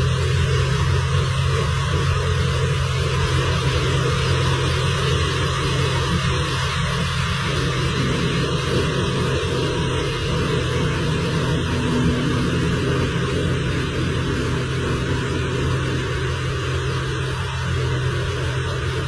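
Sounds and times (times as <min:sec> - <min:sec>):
diesel engine running: 0:00.0 - 0:19.0.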